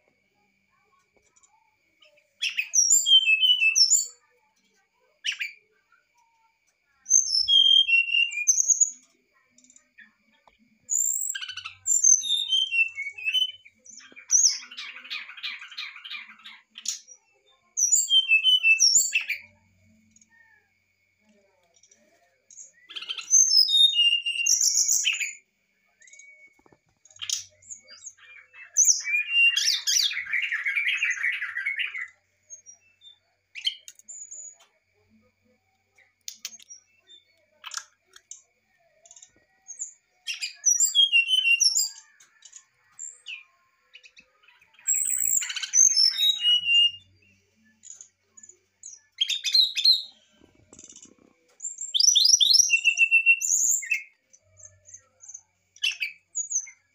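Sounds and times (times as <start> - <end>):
bird whistling song: 2.4 - 4.3, 7.1 - 9.1, 10.8 - 19.6, 22.5 - 25.4, 26.0 - 34.6, 39.0 - 54.2, 55.8 - 56.9.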